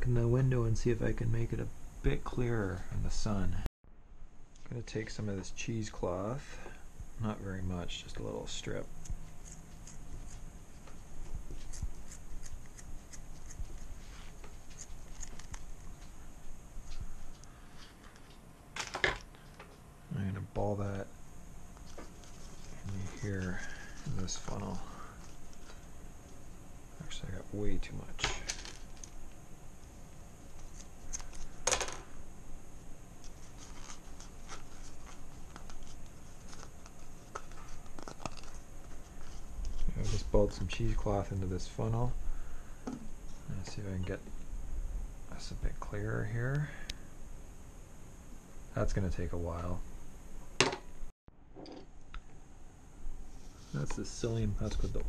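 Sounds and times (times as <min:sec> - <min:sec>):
steady low hum: 0:00.0 - 0:55.0
cloth rustling: 0:33.2 - 0:40.6.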